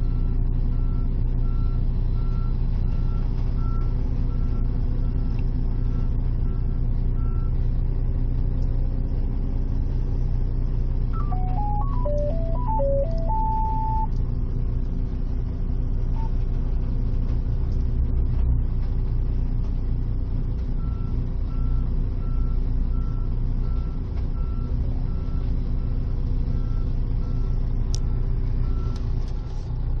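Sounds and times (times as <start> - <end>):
heavy diesel engines running: 0.0 - 30.0
reversing alarm beeping: 11.2 - 14.1.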